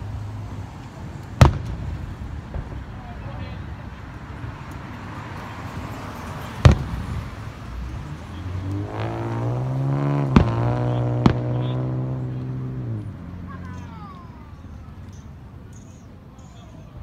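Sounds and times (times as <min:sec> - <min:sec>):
fireworks bursting: 0:00.8 - 0:12.7.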